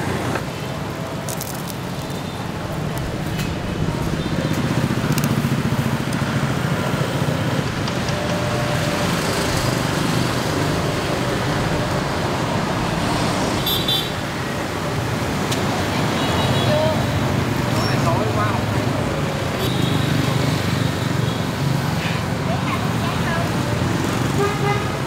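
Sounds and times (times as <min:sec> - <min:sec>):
motorbike engines running: 0:00.0 - 0:25.0
street traffic: 0:00.0 - 0:25.0.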